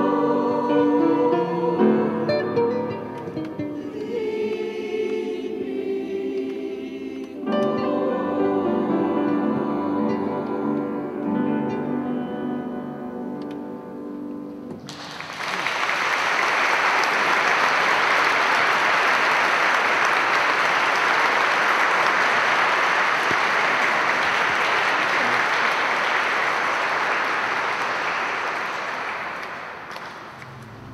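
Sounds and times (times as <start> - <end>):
audience applauding: 14.8 - 30.9
music chord: 30.4 - 30.9.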